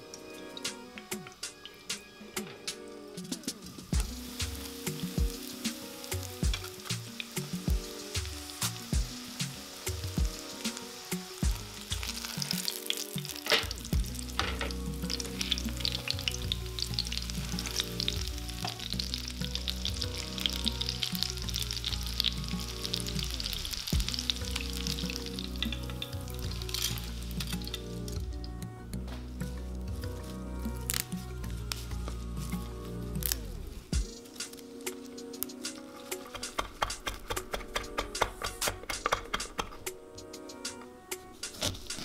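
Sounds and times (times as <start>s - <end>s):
chicken frying in hot oil: 3.9s - 28.4s.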